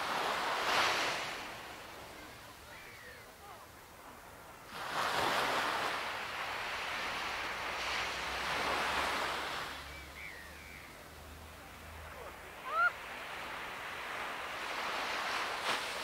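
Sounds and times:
ocean wave washing: 4.7s - 16.0s
bird chirps: 9.9s - 11.0s.

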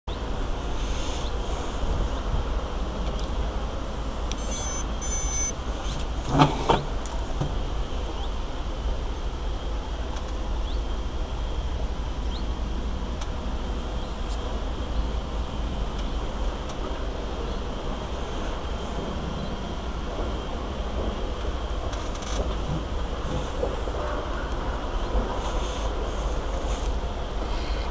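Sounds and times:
steady low noise: 0.1s - 27.9s
high electronic startup beeps: 4.3s - 5.6s.

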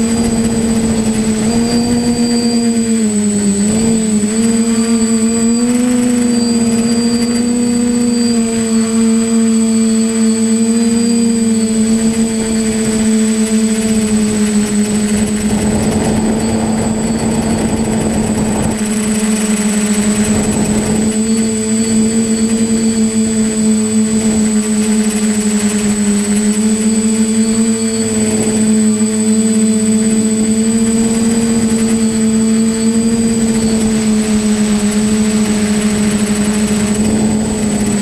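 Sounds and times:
drone motors humming: 0.0s - 38.0s
thin high whine: 0.0s - 38.0s
rush of air noise: 15.1s - 19.2s.

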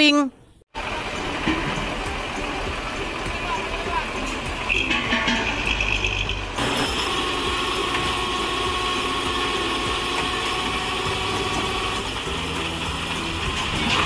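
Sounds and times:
truck engine idling: 0.7s - 14.0s.

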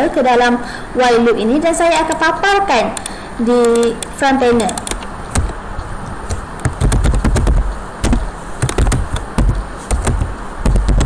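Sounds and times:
keyboard key clicks: 3.0s - 5.6s, 6.2s - 11.0s.

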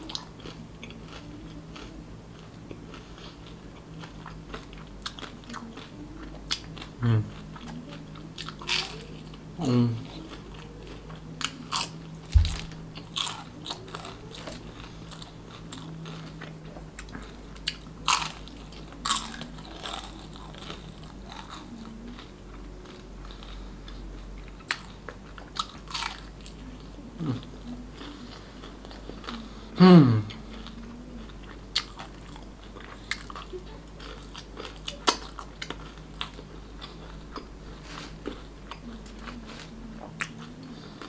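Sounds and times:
crunchy chewing of fried food: 0.0s - 41.0s
dull low thump: 12.3s - 12.8s.

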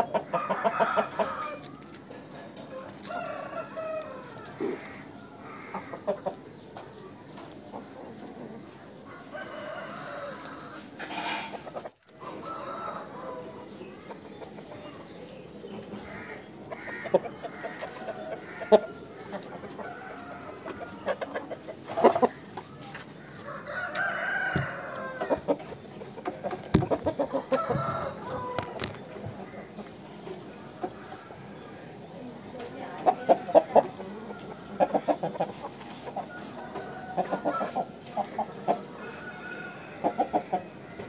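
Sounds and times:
roosters clucking: 0.0s - 41.0s
rooster crowing: 0.3s - 1.7s, 2.7s - 5.9s, 9.1s - 11.0s, 12.2s - 13.6s, 23.4s - 25.5s, 27.3s - 28.8s, 38.8s - 41.0s.

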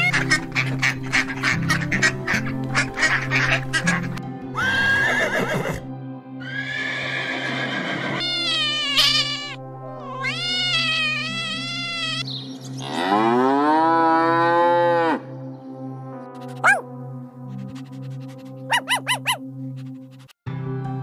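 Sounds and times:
horse whinnying: 4.6s - 9.6s
cat meowing: 8.2s - 12.3s
cow mooing: 12.8s - 15.3s.

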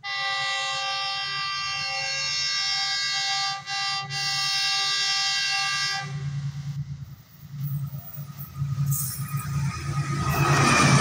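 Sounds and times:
diesel locomotive horn blast: 0.0s - 6.8s.

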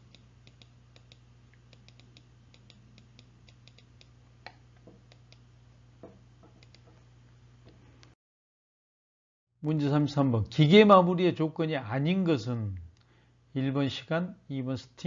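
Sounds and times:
low electrical hum: 0.0s - 8.2s, 9.6s - 15.0s
faint small clicks: 0.1s - 5.4s, 6.6s - 6.9s.

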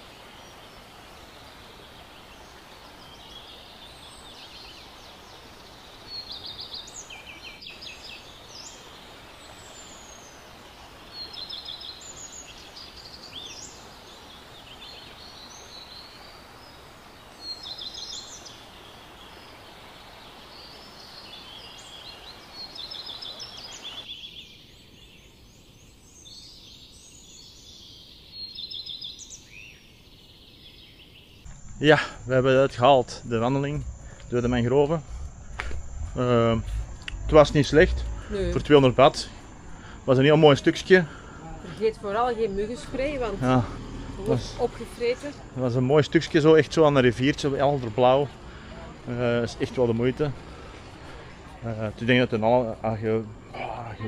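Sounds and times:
steady background hiss: 0.0s - 54.0s
birds chirping and whistling: 32.9s - 45.0s.

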